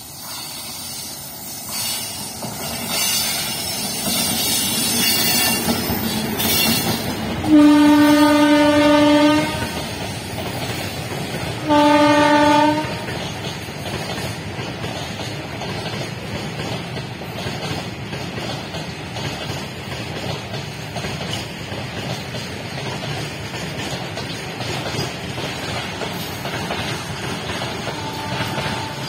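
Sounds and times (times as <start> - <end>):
electric locomotive passing: 0.0 - 29.0
freight wagons rolling on track: 1.8 - 29.0
locomotive horn blasts: 7.5 - 9.8, 11.6 - 13.1, 27.8 - 29.0.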